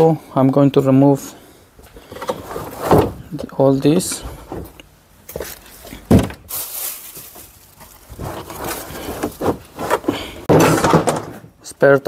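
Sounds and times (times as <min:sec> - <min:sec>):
plastic bag crinkling: 0:06.4 - 0:09.6.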